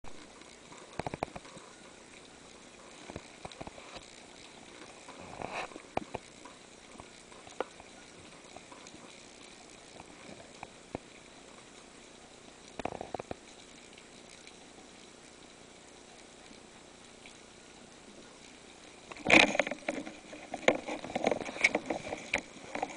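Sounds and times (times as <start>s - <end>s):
crackling bursts: 0.1s - 22.9s
faint steady hiss: 0.1s - 22.9s.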